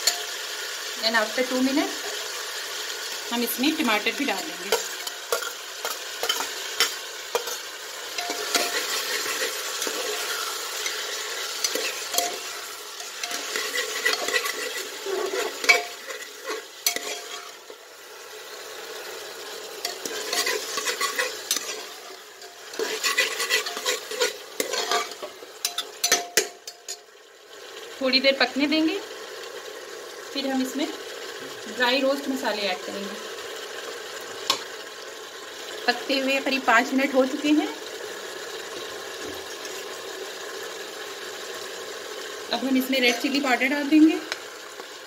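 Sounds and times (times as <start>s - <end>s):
vegetables sizzling in oil: 0.0s - 45.0s
spatula scraping metal pot: 4.7s - 17.7s, 19.8s - 26.9s.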